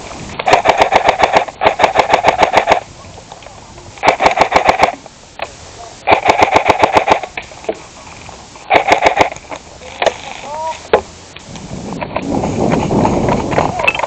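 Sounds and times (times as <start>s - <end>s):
toy gun rapid bursts: 0.5s - 2.8s, 4.0s - 5.0s, 6.1s - 7.3s, 8.7s - 9.4s.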